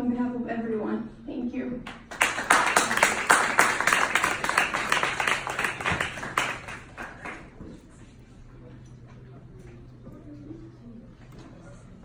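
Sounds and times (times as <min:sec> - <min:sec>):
people clapping: 0:01.9 - 0:07.9.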